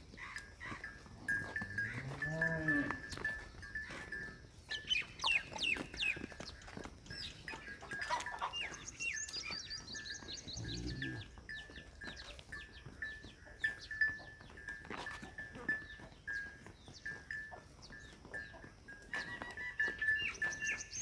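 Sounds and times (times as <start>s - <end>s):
low livestock call: 0.2s - 4.4s, 10.2s - 12.3s
small birds chirping: 2.9s - 21.0s.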